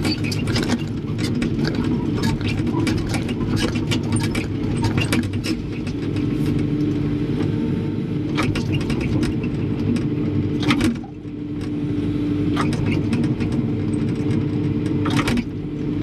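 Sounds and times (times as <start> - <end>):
clicks and rattles: 0.0 - 6.9, 12.6 - 15.5
diesel engine rumbling: 0.0 - 16.0.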